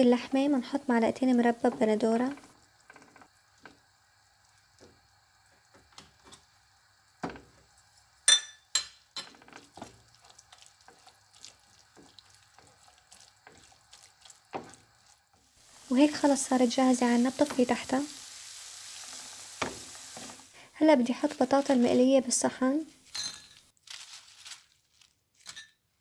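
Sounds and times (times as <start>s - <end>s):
spatula scraping frying pan: 9.3s - 20.6s.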